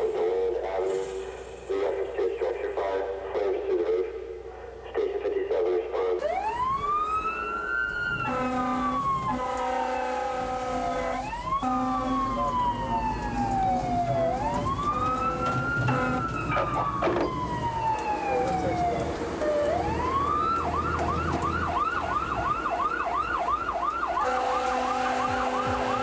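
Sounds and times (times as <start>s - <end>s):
low horn blasts: 8.2s - 12.8s, 14.9s - 16.7s, 24.2s - 26.0s.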